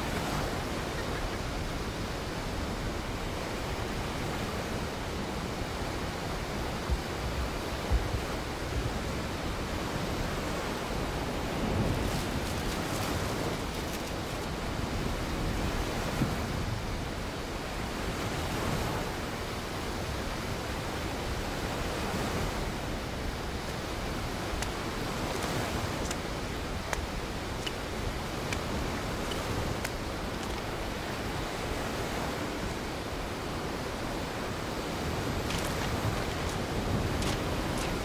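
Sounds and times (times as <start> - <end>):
sea surf: 0.0 - 38.0
wind: 0.0 - 38.0
beach cobbles clicking underfoot: 11.8 - 14.9, 23.6 - 30.8, 35.1 - 38.0.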